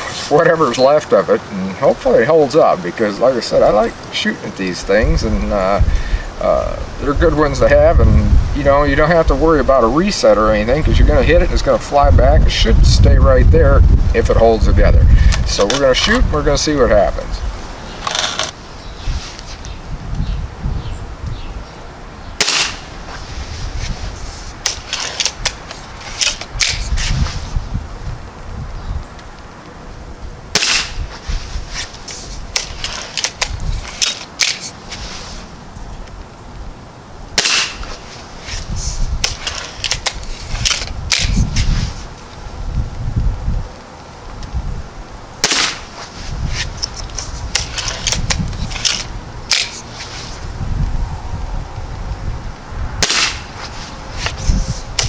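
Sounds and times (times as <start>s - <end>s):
air rifle shot crack: 22.4s - 23.0s, 30.5s - 31.1s, 37.4s - 38.0s, 45.4s - 46.0s, 53.0s - 53.6s.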